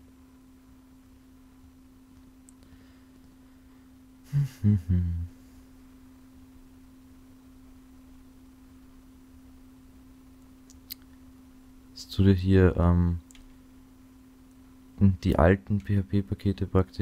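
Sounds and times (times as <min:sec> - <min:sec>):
steady low hum: 0:00.0 - 0:17.0
short low voice sounds: 0:04.3 - 0:05.4.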